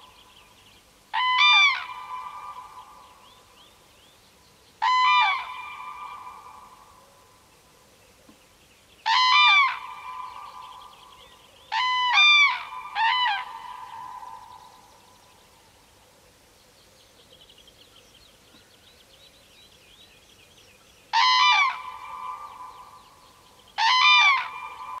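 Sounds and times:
crane trumpeting calls: 4.8s - 6.8s, 9.1s - 10.7s, 21.2s - 23.0s, 23.8s - 25.0s.

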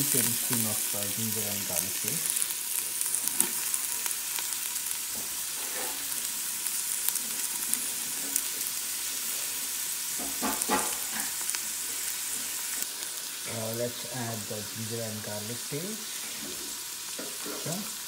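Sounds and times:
oil popping and crackling: 0.0s - 13.9s
onions sizzling in hot oil: 0.0s - 18.0s.

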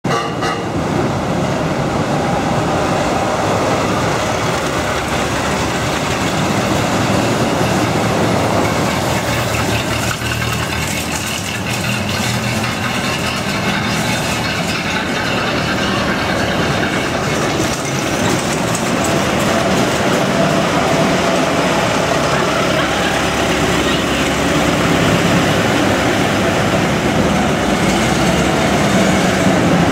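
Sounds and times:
old car engines rumbling: 0.0s - 29.9s.

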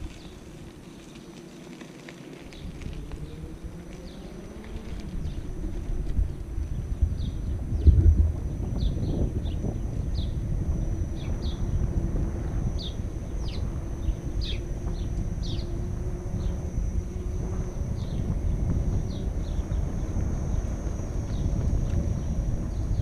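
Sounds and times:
tyre rolling over paving: 0.0s - 7.0s
small birds chirping: 0.0s - 8.0s, 8.6s - 11.9s, 12.5s - 16.7s
wind buffeting microphone: 0.0s - 23.0s.

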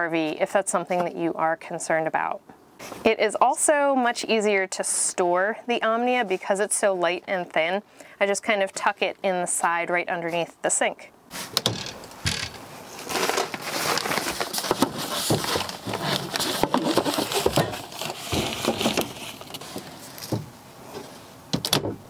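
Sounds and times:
fabric bag rustling: 12.6s - 21.2s.

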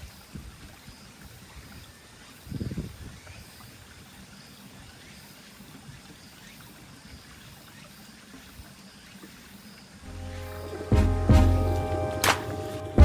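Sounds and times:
stream trickling over stones: 0.0s - 10.1s.

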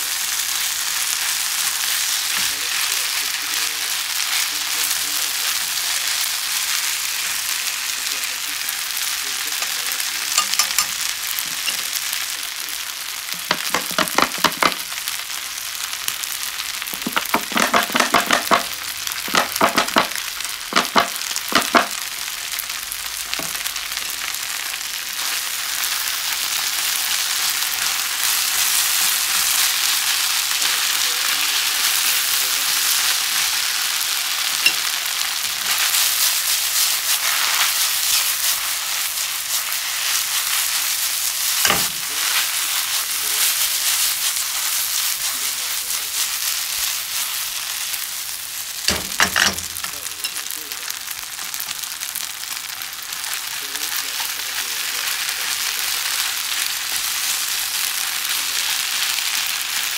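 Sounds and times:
food sizzling in a frying pan: 0.0s - 59.9s.

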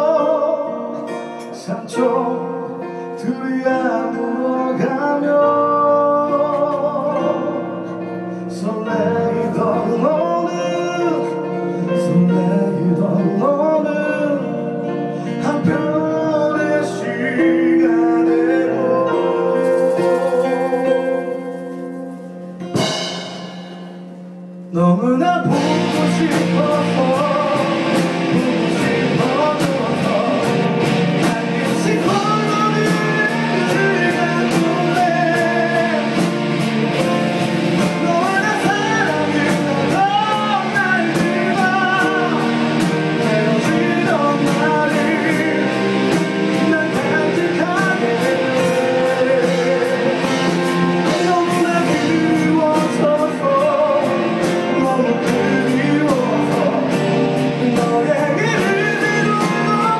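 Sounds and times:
man singing into a microphone: 0.0s - 21.7s, 24.6s - 59.9s
acoustic and electric guitars: 0.0s - 22.9s, 24.1s - 59.9s
steady beat: 19.6s - 24.7s.

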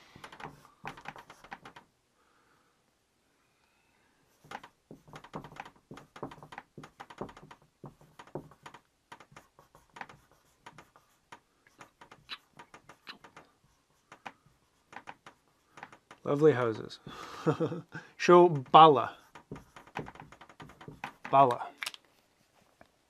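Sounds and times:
marker writing on a whiteboard: 0.0s - 1.8s, 4.3s - 16.9s, 18.2s - 21.7s.

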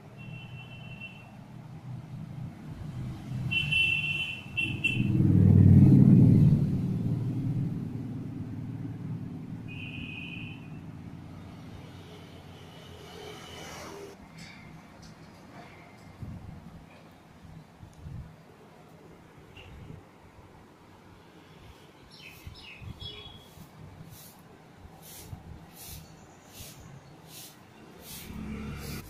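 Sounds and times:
passing vehicle rumble: 1.8s - 3.6s, 4.4s - 9.8s, 10.6s - 14.2s, 27.8s - 29.0s.

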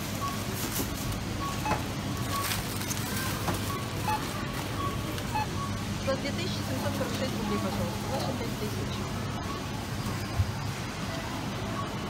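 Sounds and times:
plastic bag rustling: 0.0s - 5.3s
store hum: 0.0s - 12.0s
barcode scanner beeps: 1.2s - 2.8s, 3.6s - 10.3s.

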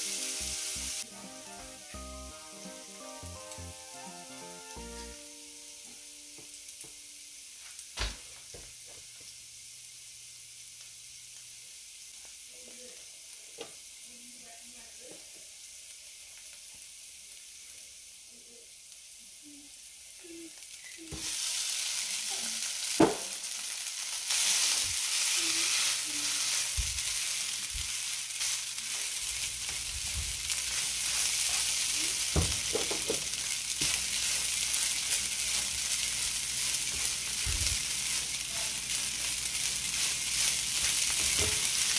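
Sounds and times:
food sizzling in oil: 0.0s - 41.9s
spatula knocking and scraping pan: 29.0s - 38.4s, 39.9s - 41.9s.

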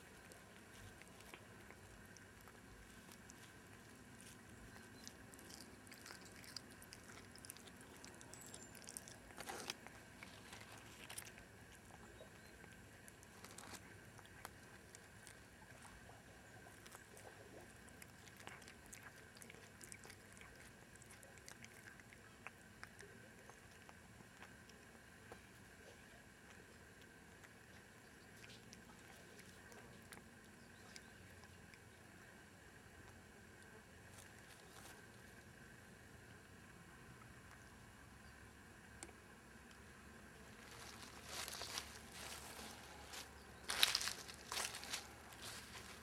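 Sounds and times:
cat chewing crunching: 0.0s - 46.0s.

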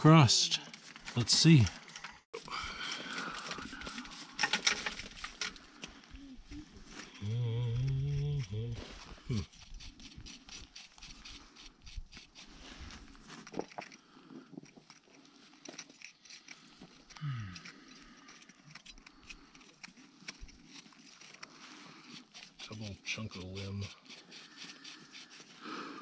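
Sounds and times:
metal pick scraping sediment: 0.1s - 6.1s, 17.6s - 25.6s.

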